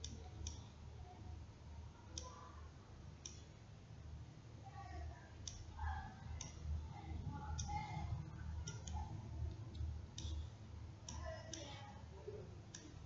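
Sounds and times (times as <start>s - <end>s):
computer mouse clicks: 0.0s - 0.7s, 3.2s - 3.5s, 8.6s - 11.8s
low steady hum: 0.0s - 13.0s.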